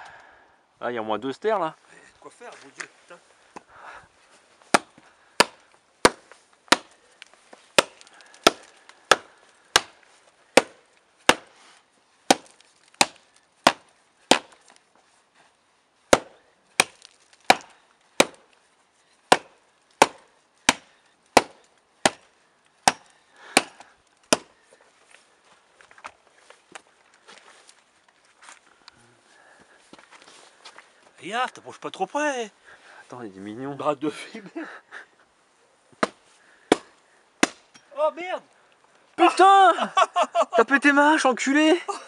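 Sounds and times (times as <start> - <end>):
hatchet chopping log: 4.7 - 7.0, 7.7 - 11.6, 12.3 - 14.6, 16.1 - 18.5, 19.3 - 24.5, 36.0 - 37.9.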